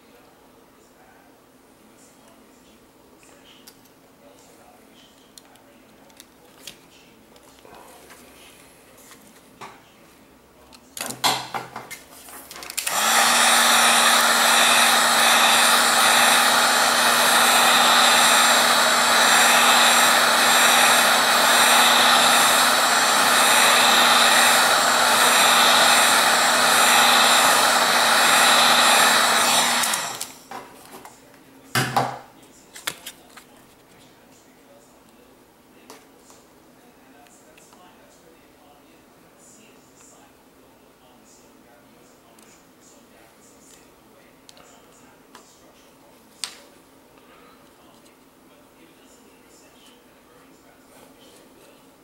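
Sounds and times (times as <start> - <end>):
heat gun blowing air: 12.8 - 30.4.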